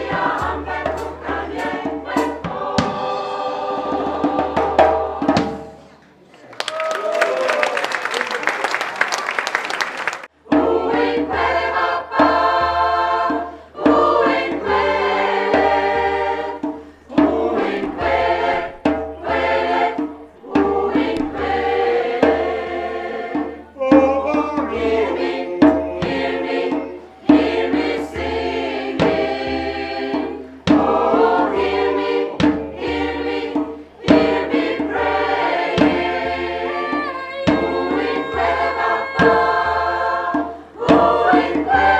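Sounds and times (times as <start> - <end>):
mixed choir singing: 0.0 - 5.9, 10.4 - 41.9
audience applause: 6.3 - 10.3.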